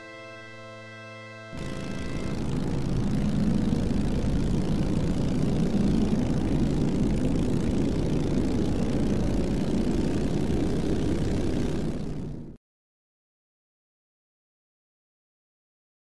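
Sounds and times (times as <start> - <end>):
low engine drone: 0.0 - 12.6.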